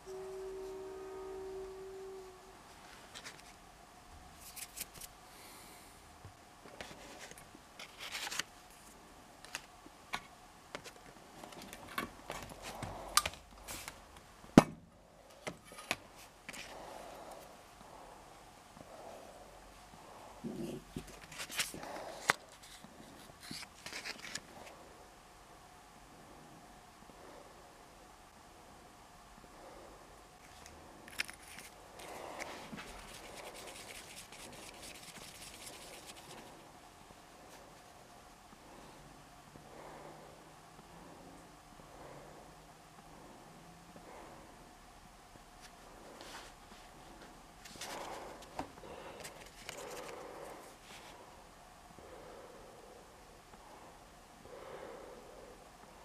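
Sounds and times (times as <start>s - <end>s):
putty scratching and rubbing: 32.8s - 36.3s.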